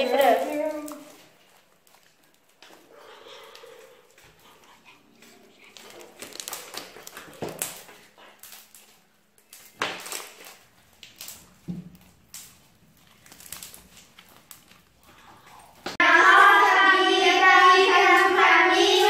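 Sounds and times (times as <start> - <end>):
slime being stretched and squeezed: 5.6 - 16.0.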